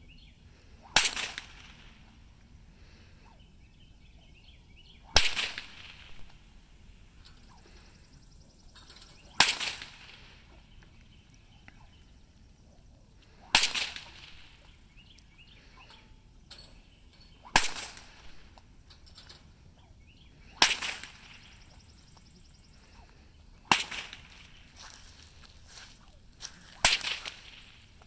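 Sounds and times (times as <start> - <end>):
whip cracks with echo: 0.8 - 2.1, 5.0 - 6.4, 9.2 - 10.6, 13.4 - 14.7, 17.4 - 18.5, 20.5 - 21.8, 23.0 - 24.5, 26.7 - 27.9.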